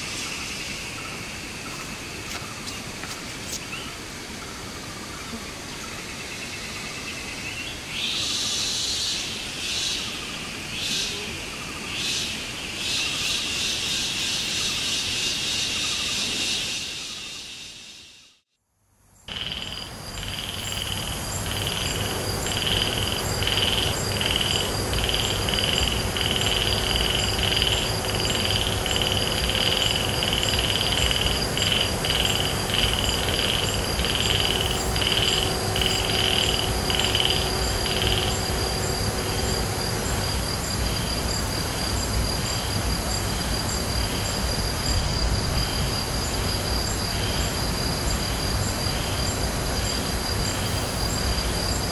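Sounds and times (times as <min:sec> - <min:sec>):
pulsing frog or insect call: 0:00.0 - 0:18.4, 0:19.2 - 0:51.9
high steady trilling: 0:19.3 - 0:40.6
low steady hum: 0:19.3 - 0:45.6.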